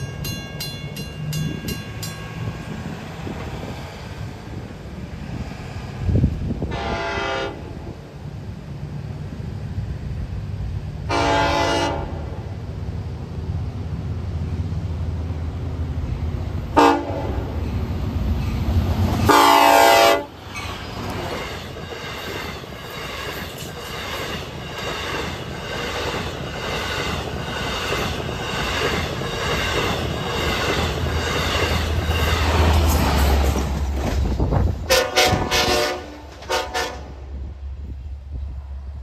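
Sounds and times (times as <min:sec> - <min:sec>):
train cars rushing past: 0:00.0 - 0:39.0
train horn blasts: 0:06.6 - 0:07.9, 0:11.1 - 0:12.4, 0:16.8 - 0:17.5, 0:19.3 - 0:20.4, 0:34.8 - 0:37.4.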